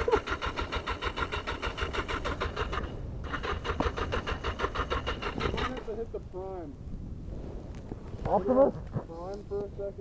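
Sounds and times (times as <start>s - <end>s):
motorcycle starter cranking engine: 0.0s - 6.0s.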